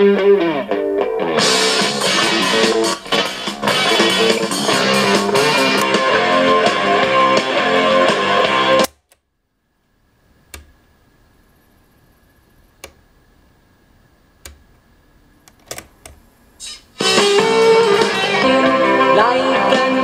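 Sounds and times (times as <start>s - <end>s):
guitar music: 0.0s - 8.9s
faint tape hiss: 0.0s - 20.0s
cassette deck control clicks: 3.1s - 6.0s, 8.8s - 9.2s, 10.4s - 10.8s, 12.7s - 13.1s, 14.4s - 14.8s, 15.4s - 16.2s.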